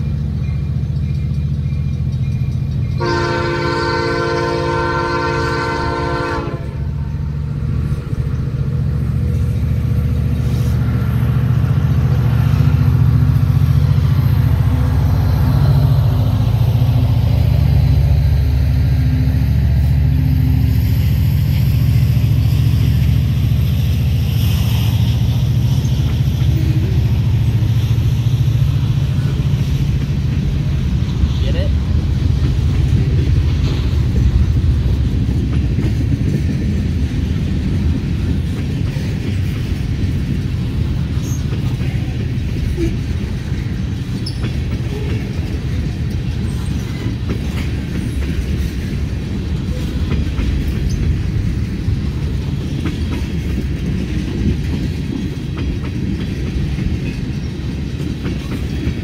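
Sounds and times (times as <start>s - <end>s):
locomotive engine rumble: 0.0s - 59.0s
rail cars rolling rumble: 0.0s - 59.0s
train horn blast: 3.0s - 7.2s.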